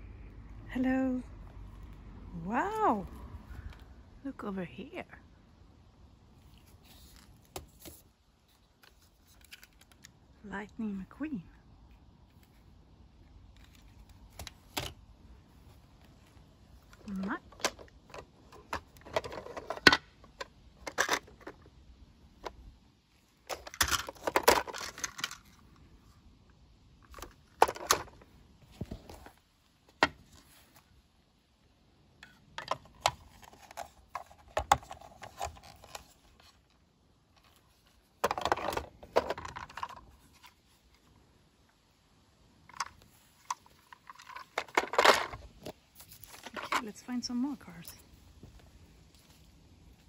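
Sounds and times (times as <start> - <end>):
toy cars clattering on wood: 23.5 - 25.5, 43.9 - 45.8.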